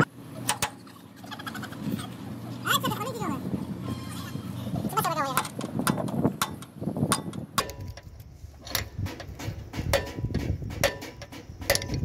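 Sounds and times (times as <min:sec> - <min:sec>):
hammer knocking on metal: 0:09.0 - 0:12.0.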